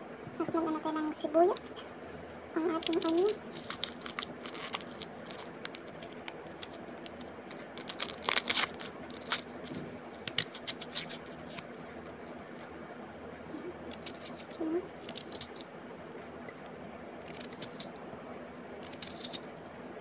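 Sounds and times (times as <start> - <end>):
onion being cut by hand: 13.8 - 15.6, 17.2 - 17.9, 18.8 - 19.4.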